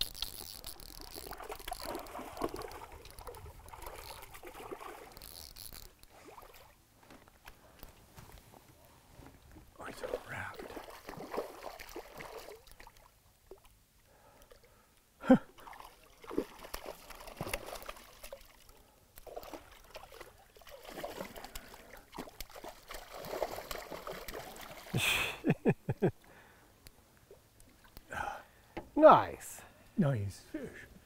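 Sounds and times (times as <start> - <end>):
fish splashing and thrashing: 0.0 - 6.8, 9.9 - 13.8, 15.6 - 25.0.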